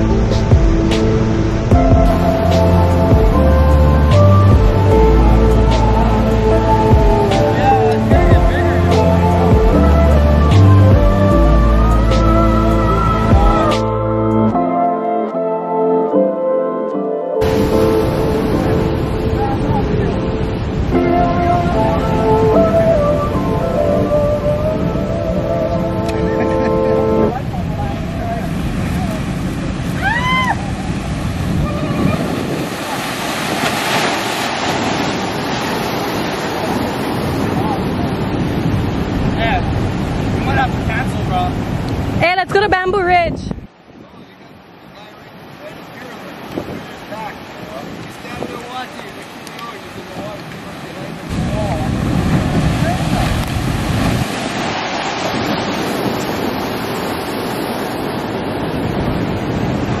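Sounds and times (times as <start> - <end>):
heavy surf breaking on rocks: 0.0 - 14.0, 17.4 - 60.0
wind on microphone: 17.4 - 60.0.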